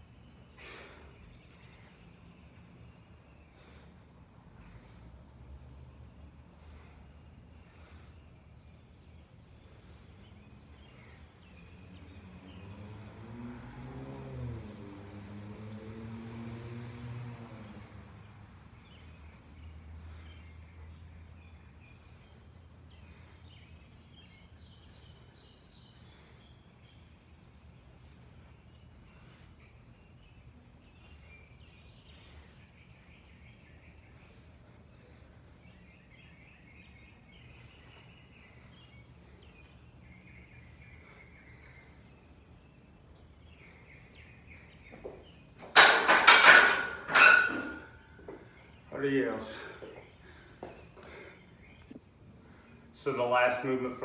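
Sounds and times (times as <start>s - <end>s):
faint bird chirping: 0.0s - 13.1s, 18.6s - 45.6s, 47.2s - 54.0s
vehicle engine passing by: 11.8s - 21.3s.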